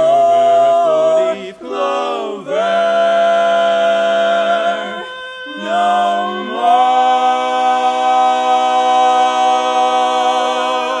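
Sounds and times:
male quartet singing a cappella: 0.0s - 11.0s.

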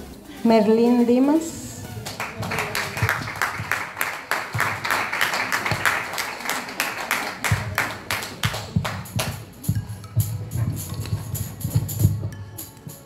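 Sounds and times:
music with low drum beat: 1.6s - 6.2s, 7.3s - 13.0s
group hand clapping: 1.9s - 12.0s.

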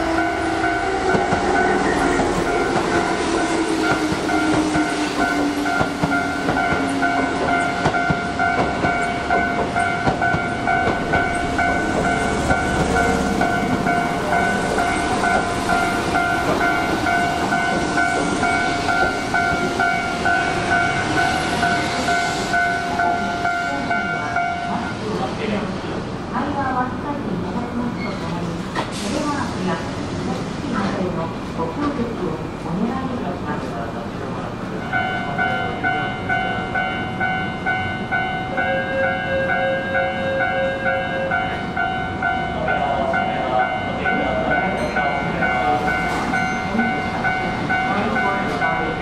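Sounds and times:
level crossing alarm dinging: 0.0s - 25.0s, 34.8s - 49.0s
train rumble and wheel clatter: 0.0s - 49.0s.

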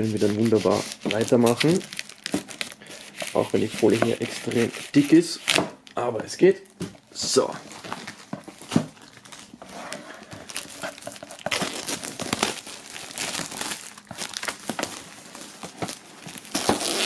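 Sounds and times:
plastic film crinkling: 0.0s - 6.0s, 7.0s - 17.0s.

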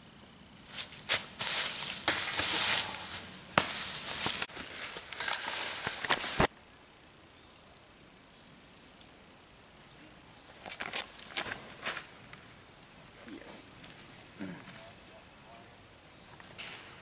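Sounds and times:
footsteps crunching dry leaves: 0.7s - 6.5s.

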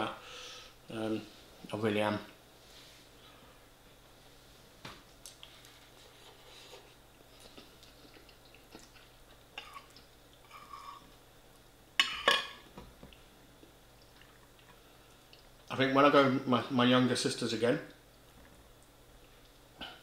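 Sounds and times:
soft chewing: 5.0s - 11.7s, 13.1s - 15.7s.

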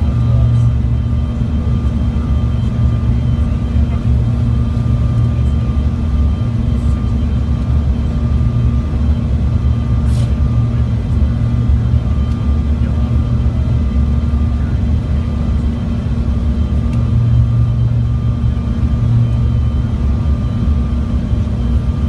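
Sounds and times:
faint whine tones: 0.0s - 22.0s
jet cabin low rumble: 0.0s - 22.0s.

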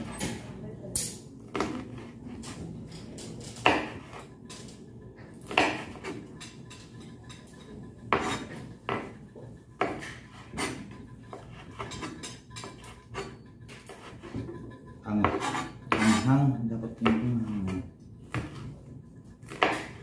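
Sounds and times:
knife chopping on cutting board: 1.5s - 2.2s, 3.6s - 4.2s, 5.4s - 6.2s, 8.1s - 9.2s, 9.8s - 13.3s, 15.2s - 16.3s, 17.0s - 18.7s, 19.4s - 20.0s.

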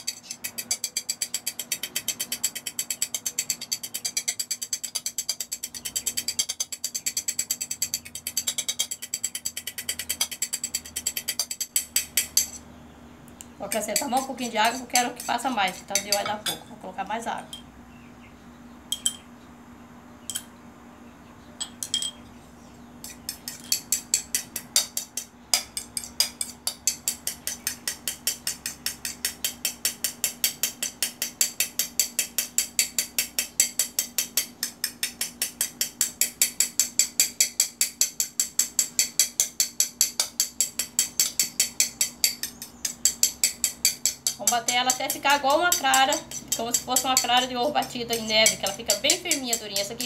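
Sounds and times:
metal spoon beating on plate: 0.0s - 12.6s, 13.7s - 16.7s, 23.0s - 50.0s
spoon clinks: 18.9s - 19.2s, 21.6s - 22.2s.

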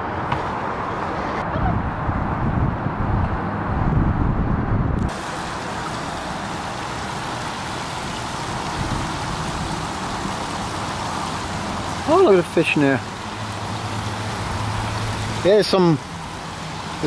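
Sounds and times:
waterfall splashing into pond: 5.0s - 17.0s.

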